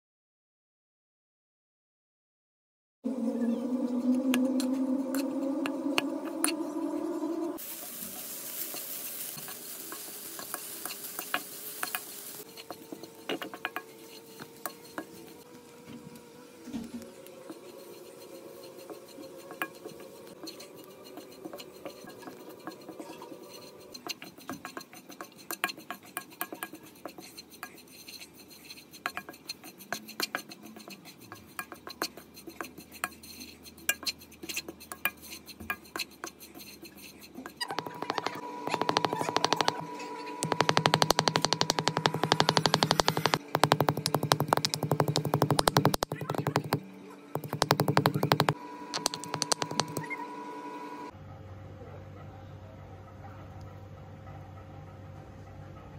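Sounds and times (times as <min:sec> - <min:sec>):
spatula scraping coconut in pan: 0:07.6 - 0:15.5, 0:17.2 - 0:39.8, 0:40.4 - 0:46.8
spatula tapping pan: 0:37.6 - 0:39.8, 0:40.4 - 0:46.8, 0:47.4 - 0:50.1.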